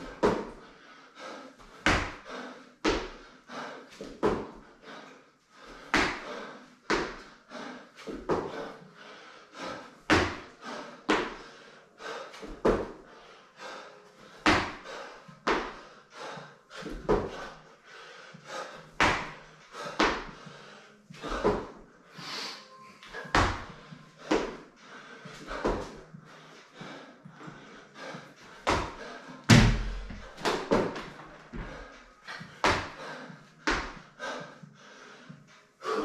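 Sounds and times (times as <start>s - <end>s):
thuds on rubber floor mats: 16.8s - 17.4s, 20.0s - 20.4s, 21.3s - 21.7s, 28.7s - 31.8s, 32.6s - 33.0s.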